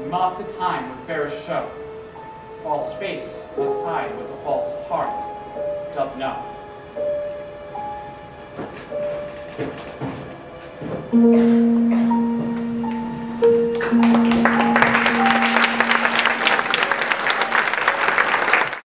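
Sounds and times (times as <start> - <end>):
music with long low notes: 0.0 - 18.8
audience applause: 13.7 - 18.8.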